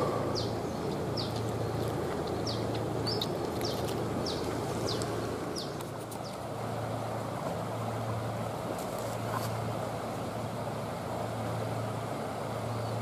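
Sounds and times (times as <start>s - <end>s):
flowing river water: 0.0s - 13.0s
low even hum: 0.0s - 13.0s
small bird chirping: 0.3s - 6.4s.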